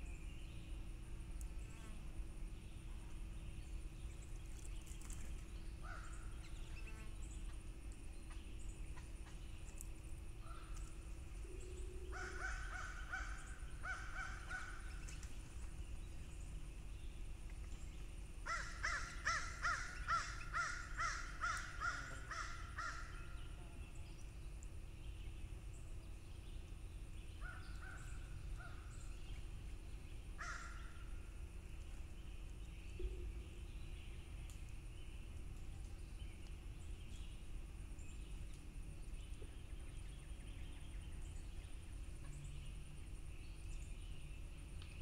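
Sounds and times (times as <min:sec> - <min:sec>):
crows cawing: 0:12.1 - 0:14.8, 0:18.4 - 0:23.1, 0:30.4 - 0:30.9.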